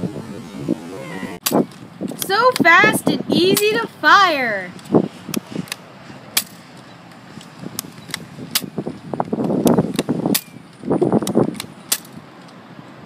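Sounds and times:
rustling noise: 4.7s - 12.2s.

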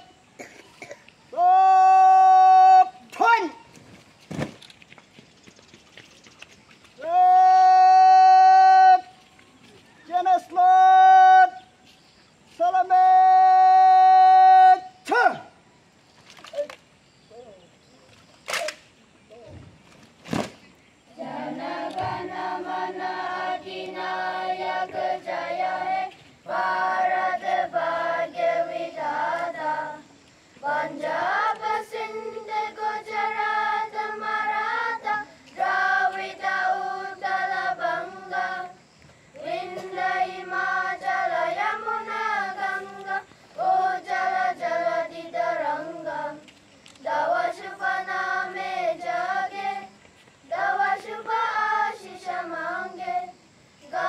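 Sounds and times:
children singing in unison: 21.1s - 38.8s, 39.4s - 54.0s.

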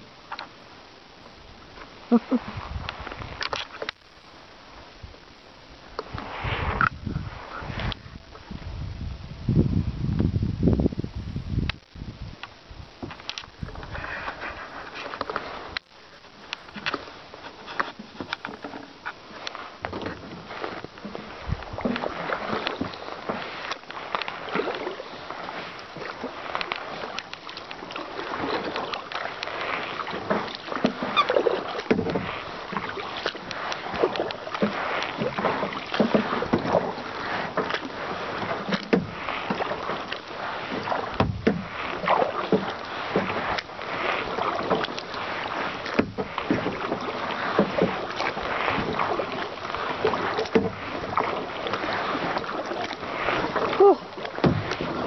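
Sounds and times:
paddle splashing in water: 0.0s - 8.7s, 11.7s - 55.0s.

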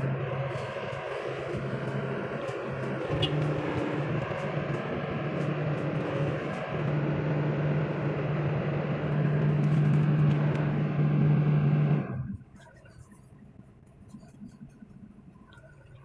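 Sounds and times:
excavator diesel engine running: 0.0s - 12.4s.

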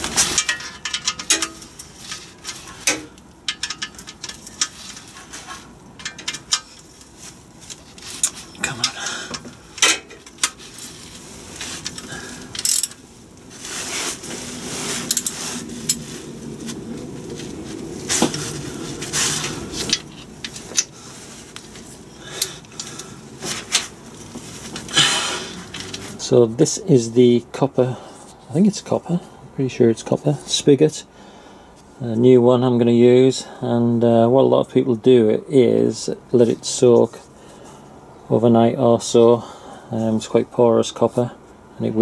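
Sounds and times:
socket clinking against bolts: 0.2s - 1.9s, 2.7s - 5.0s.

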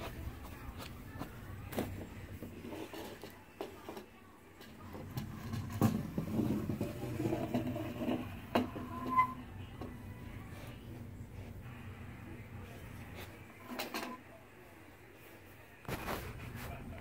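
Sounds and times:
toy scraping on table: 5.0s - 9.9s.

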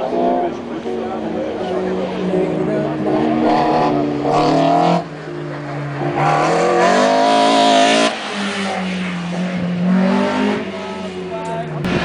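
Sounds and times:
car engine revving hard: 3.1s - 5.1s, 6.0s - 10.9s.

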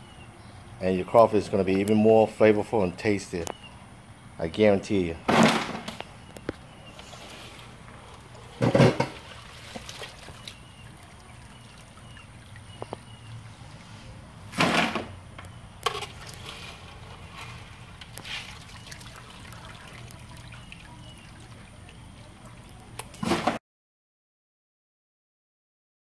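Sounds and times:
liquid splashing: 6.9s - 15.1s, 15.8s - 23.6s
liquid pouring and dripping: 17.9s - 23.2s.

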